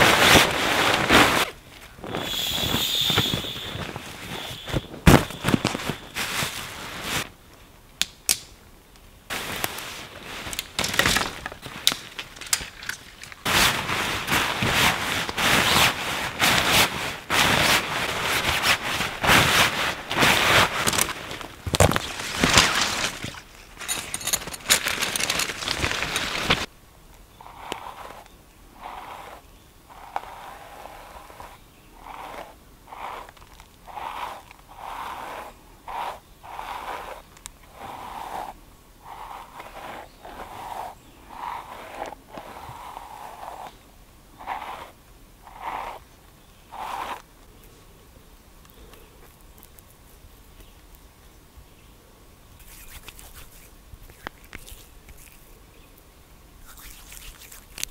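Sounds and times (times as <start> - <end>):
hairbrush scraping through beard: 0.0 - 7.2, 27.5 - 43.8, 44.4 - 46.1, 46.7 - 47.2, 52.6 - 55.5, 56.6 - 57.9
tent fabric rustling: 0.0 - 7.3, 9.3 - 26.7.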